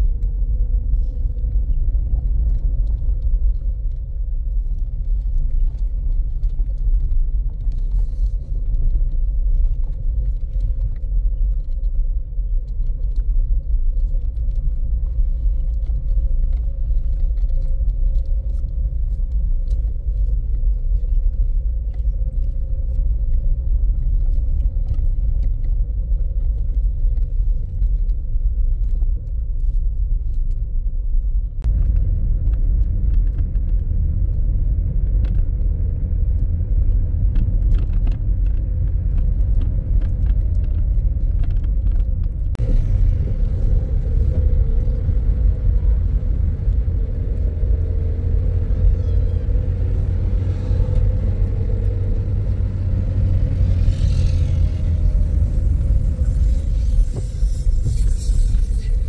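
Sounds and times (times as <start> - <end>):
car engine and tyre rumble: 0.0 - 59.0
rattles and clicks: 36.3 - 59.0.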